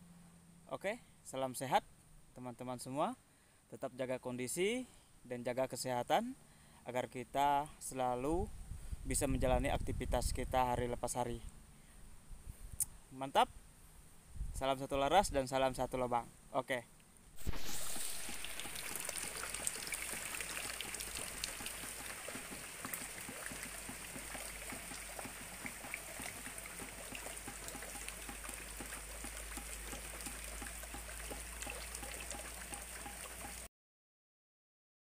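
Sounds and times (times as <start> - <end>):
steady rain on leaves: 17.4 - 33.7.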